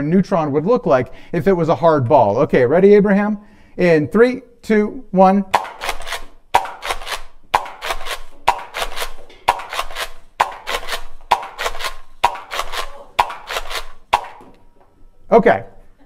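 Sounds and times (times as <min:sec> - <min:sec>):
toy blaster snapping: 0:05.6 - 0:14.4.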